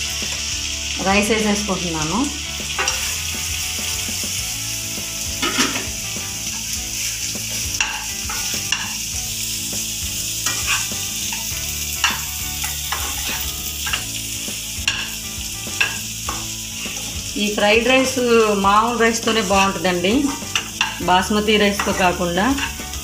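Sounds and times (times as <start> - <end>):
rice sizzling in hot oil: 0.0 - 23.0
ladle scraping and clinking pan: 2.7 - 3.2, 5.4 - 6.0, 7.5 - 9.0, 10.4 - 14.1, 15.8 - 17.2, 19.3 - 21.1, 21.8 - 23.0.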